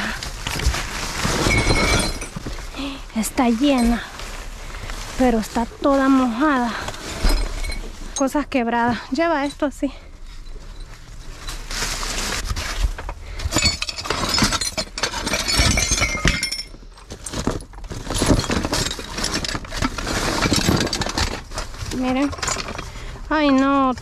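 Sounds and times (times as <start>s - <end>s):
figurines clinking in a box: 0.0s - 4.5s, 9.1s - 24.0s.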